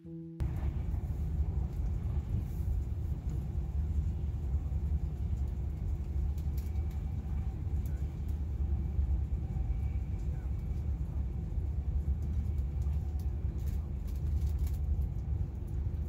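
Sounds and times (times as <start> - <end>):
train rumbling inside carriage: 0.4 - 16.0
faint light ticks: 5.1 - 8.5, 12.1 - 15.8.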